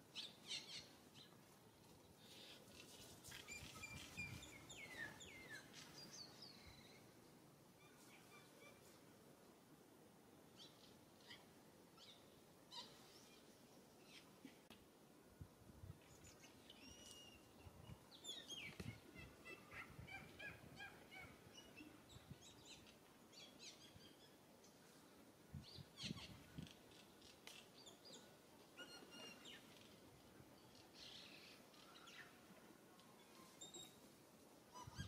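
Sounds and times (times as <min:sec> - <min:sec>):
faint birdsong: 0:00.0 - 0:09.0, 0:16.0 - 0:35.0
rustles: 0:00.1 - 0:06.4, 0:24.6 - 0:34.8.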